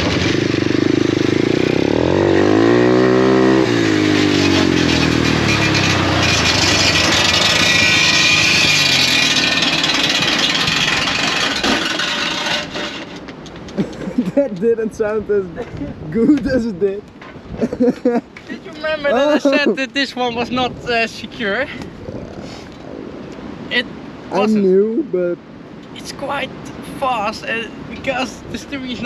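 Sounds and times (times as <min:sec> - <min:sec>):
small petrol engine revving: 0:00.0 - 0:13.2.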